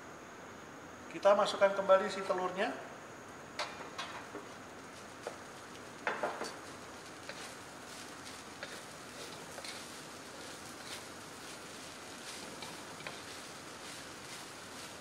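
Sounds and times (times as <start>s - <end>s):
faint steady hiss: 0.0s - 15.0s
spatula scraping a steel wok: 7.3s - 11.1s.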